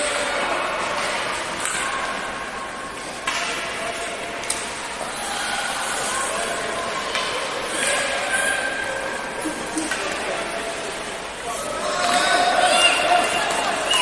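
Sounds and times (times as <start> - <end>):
hockey stick or puck clacks: 0.0 - 2.2, 2.9 - 4.9, 7.0 - 7.5.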